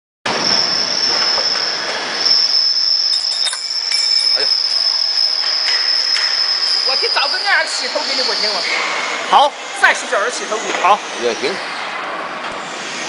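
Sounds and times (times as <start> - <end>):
woodworking machine whining: 0.3 - 8.7.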